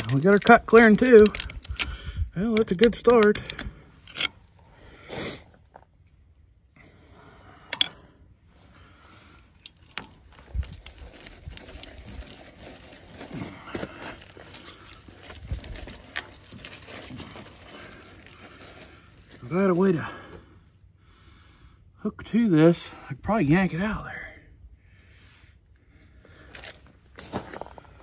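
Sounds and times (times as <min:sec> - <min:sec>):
wire rope scraping and rustling: 0:09.3 - 0:19.6.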